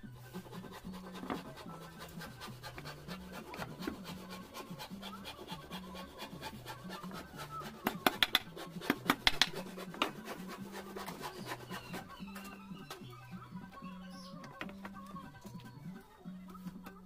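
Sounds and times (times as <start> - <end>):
faint background music: 0.0 - 17.0
hammer knocking on wood: 7.8 - 10.2.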